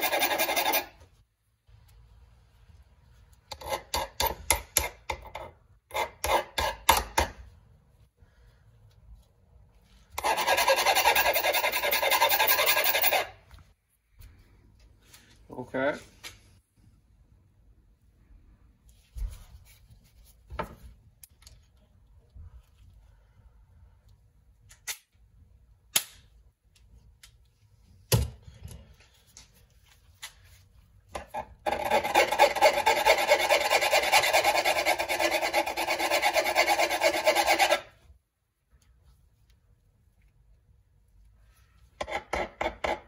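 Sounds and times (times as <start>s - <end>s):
hand file rasping on steel: 0.0s - 1.0s, 10.2s - 13.4s, 31.2s - 38.0s.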